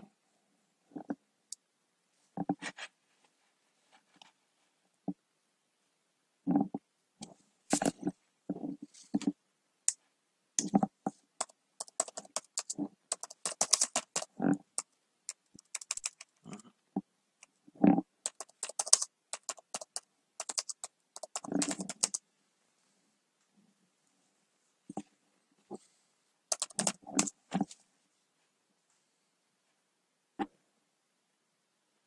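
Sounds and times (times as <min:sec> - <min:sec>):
keyboard typing clicks: 0:11.4 - 0:16.3, 0:18.2 - 0:22.2, 0:26.5 - 0:27.3.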